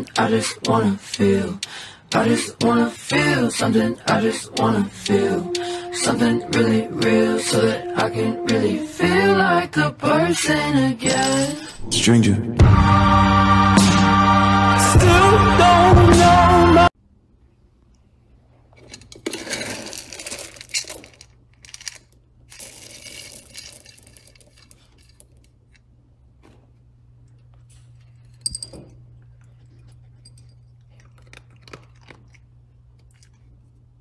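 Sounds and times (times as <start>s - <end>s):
dog eating kibble from bowl: 29.4s - 33.5s.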